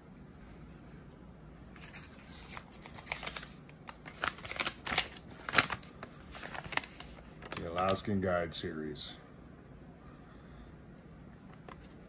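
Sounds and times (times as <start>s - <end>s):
paper crinkling: 1.8s - 8.1s, 11.5s - 12.0s.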